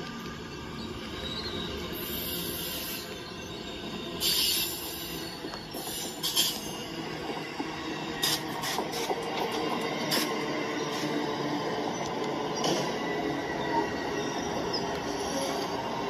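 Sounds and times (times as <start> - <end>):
sharp squeaks and clicks: 1.1 - 7.6, 11.8 - 15.9.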